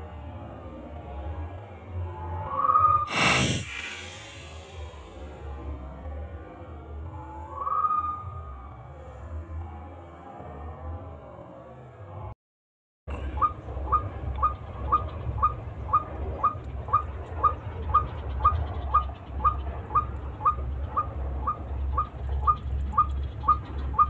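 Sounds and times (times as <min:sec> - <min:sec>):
steady low rumble: 0:03.1 - 0:07.2, 0:13.1 - 0:24.0.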